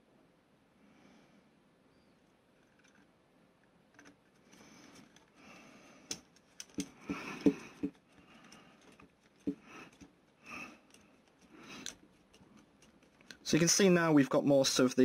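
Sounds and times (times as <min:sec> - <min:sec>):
plastic parts clicking: 0:03.9 - 0:05.4, 0:06.0 - 0:13.6
screwdriver scraping: 0:06.1 - 0:13.5.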